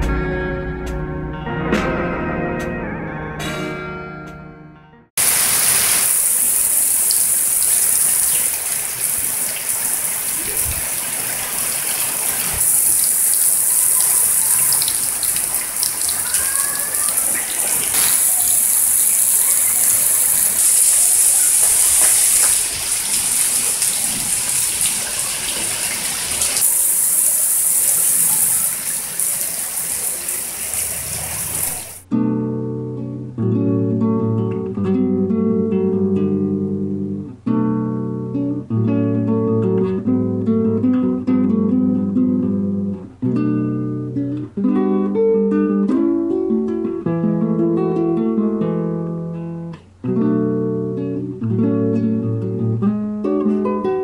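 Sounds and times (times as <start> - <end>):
acoustic guitar music: 0.0 - 5.4, 31.7 - 54.0
steady rain falling: 5.2 - 32.0.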